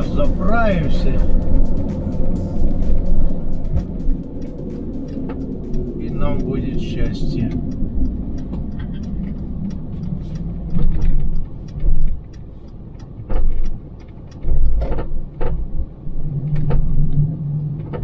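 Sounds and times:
heavy low thumps: 0.0 - 9.9
engine and road rumble: 0.0 - 18.0
light rattling ticks: 0.0 - 18.0.

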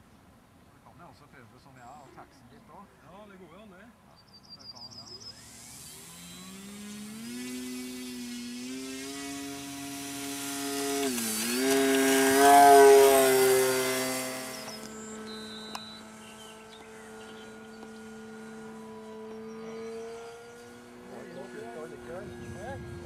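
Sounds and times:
model plane motor whining: 5.1 - 23.0.

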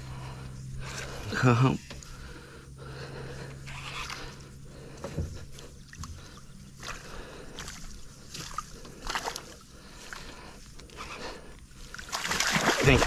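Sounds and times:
water splashing against boat: 11.9 - 13.0.

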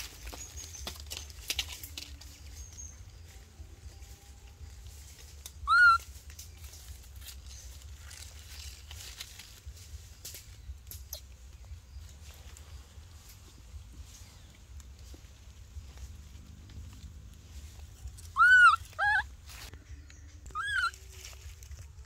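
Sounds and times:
hands rustling dry leaves: 0.0 - 22.0
baby monkey cooing: 5.6 - 6.0, 18.2 - 19.3, 20.5 - 21.0.

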